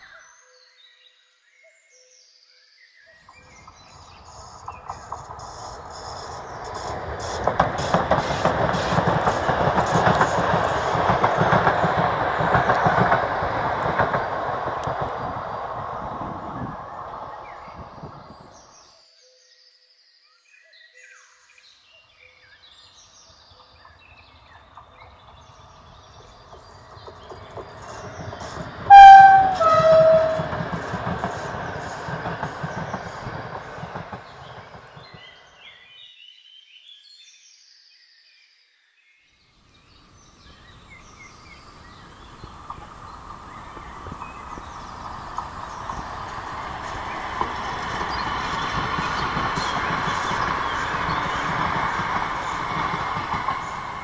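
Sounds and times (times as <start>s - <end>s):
faint approaching train: 3.0s - 19.2s, 21.6s - 36.3s, 39.6s - 54.0s
electric locomotive passing: 3.2s - 18.9s, 23.3s - 35.9s, 40.1s - 54.0s
receding train: 3.2s - 19.0s, 22.9s - 36.0s, 39.8s - 54.0s
two-tone train horn: 28.9s - 30.7s.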